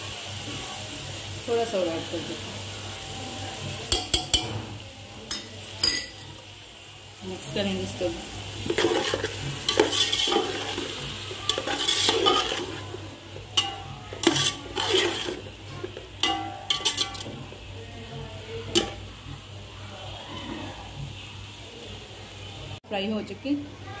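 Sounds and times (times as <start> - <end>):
spoon clanking against pot: 3.9 - 4.6, 8.7 - 12.8, 13.5 - 17.6, 18.7 - 19.1
metal spoon scraping a pot: 8.6 - 17.6.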